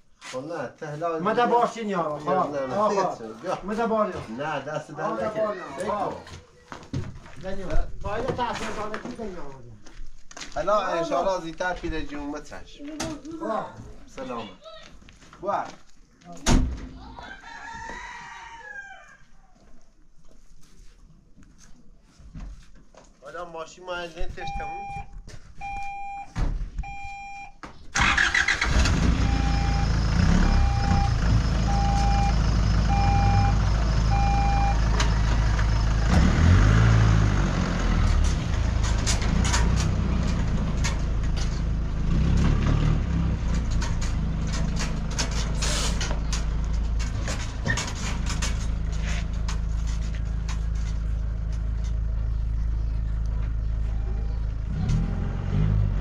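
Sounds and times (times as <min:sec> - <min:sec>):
reversing beeper: 0:24.4 - 0:27.5, 0:28.7 - 0:34.9, 0:53.9 - 0:54.5.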